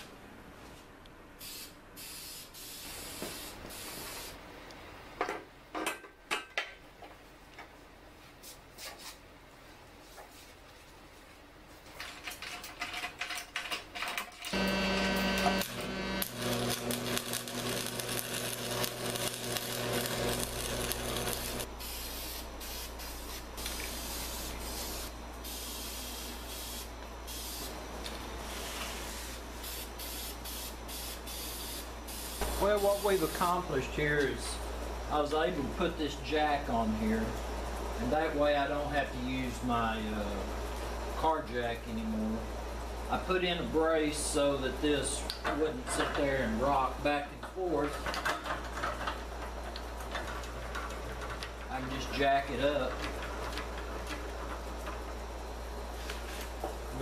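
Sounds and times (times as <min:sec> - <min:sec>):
machine humming and hissing: 0:14.5 - 0:35.2.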